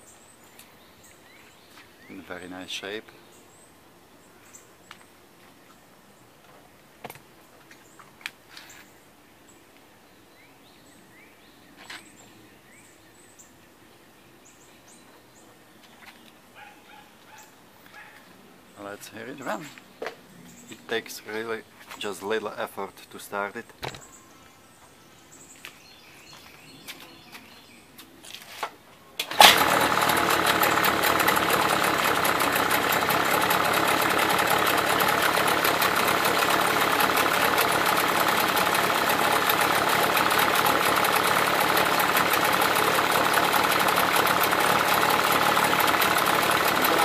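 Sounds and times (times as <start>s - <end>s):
outboard motor running: 29.3s - 47.0s.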